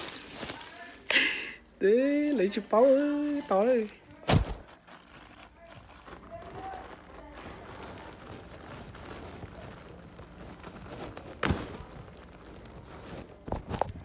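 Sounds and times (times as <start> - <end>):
clothing rubbing on microphone: 5.5 - 14.0.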